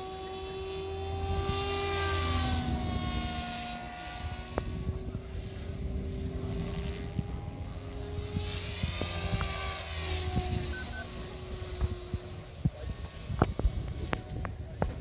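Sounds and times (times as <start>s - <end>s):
rc helicopter rotor hum: 0.0s - 15.0s.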